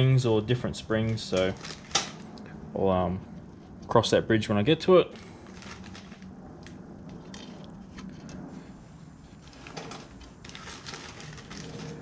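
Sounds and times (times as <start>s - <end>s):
low steady hum: 0.0s - 12.0s
plastic bag rustling: 1.3s - 2.3s, 5.1s - 12.0s.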